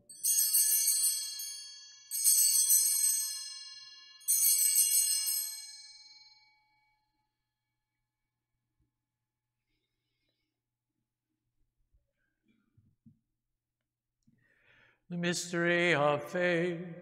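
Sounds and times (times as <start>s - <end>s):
altar bells jingling: 0.0s - 7.1s.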